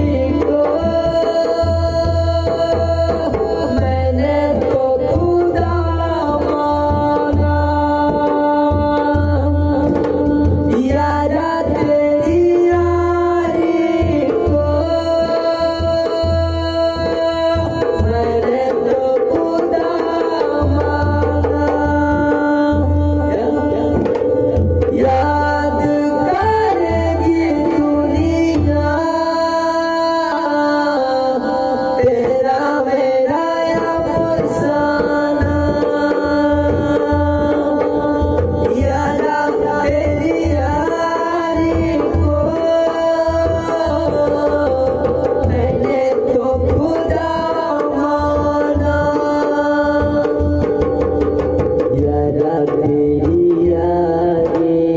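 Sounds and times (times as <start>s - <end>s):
dholak drum rhythm: 0.0s - 54.9s.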